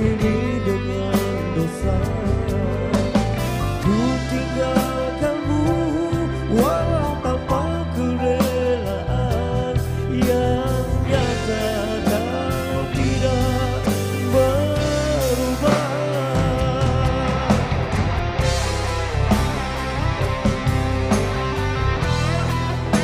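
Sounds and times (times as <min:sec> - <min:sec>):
man singing into microphone: 0:00.0 - 0:03.2, 0:03.8 - 0:17.9
bass guitar: 0:00.0 - 0:23.0
drum kit: 0:00.0 - 0:23.0
electric guitar: 0:00.0 - 0:23.0.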